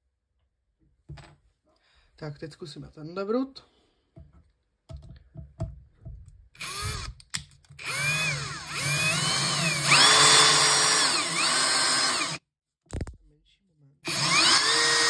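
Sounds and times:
cordless drill motor whine: 0:06.6 - 0:07.2, 0:07.8 - 0:12.4, 0:14.1 - 0:15.0.

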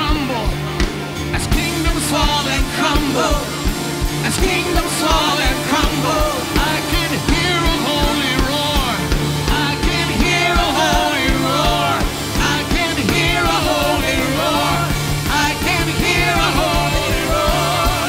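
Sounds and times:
steady drum beat: 0:00.0 - 0:18.0
worship band music: 0:00.0 - 0:18.0.

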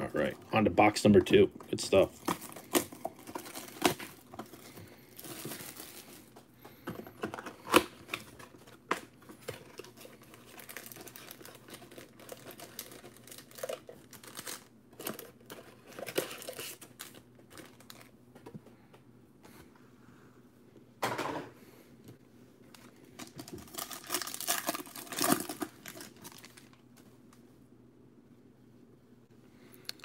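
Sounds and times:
shrink wrap crinkling and tearing: 0:01.7 - 0:06.4, 0:07.4 - 0:18.2, 0:22.7 - 0:27.0.

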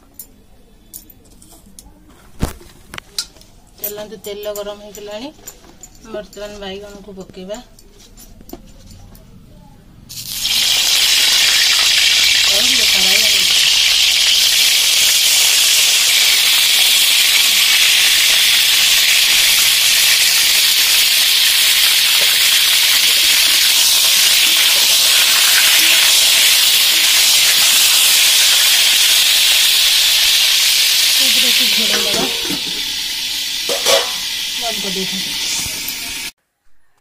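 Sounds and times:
vegetables sizzling in hot oil: 0:10.1 - 0:36.3.

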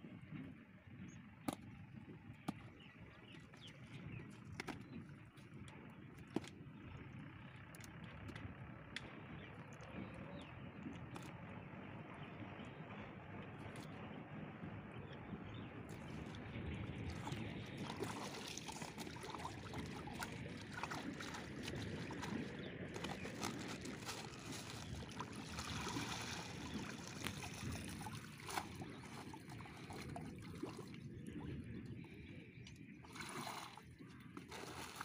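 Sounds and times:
river water splashing and sloshing: 0:15.9 - 0:35.0.

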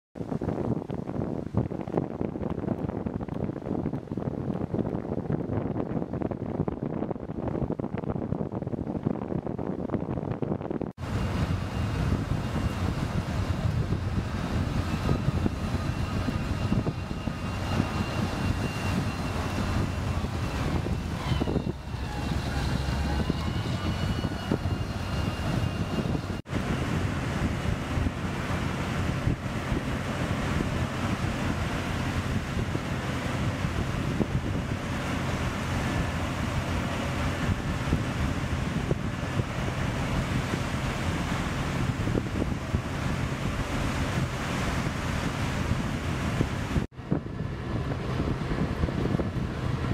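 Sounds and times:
vehicle engine low rumble: 0:00.2 - 0:49.9
wind buffeting microphone: 0:00.2 - 0:49.9
faint high whine: 0:11.0 - 0:29.0.

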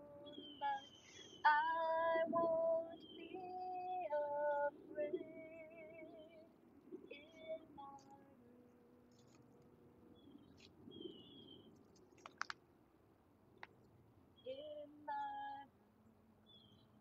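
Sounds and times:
woman singing a cappella: 0:00.0 - 0:06.5, 0:07.1 - 0:09.2, 0:14.4 - 0:15.8.

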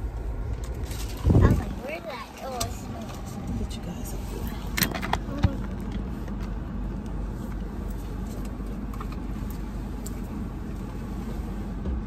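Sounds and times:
car engine rumble inside cabin: 0:00.0 - 0:12.0.

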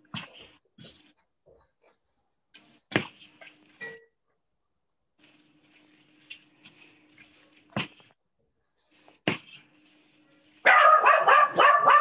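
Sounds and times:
dogs barking: 0:10.6 - 0:12.0.

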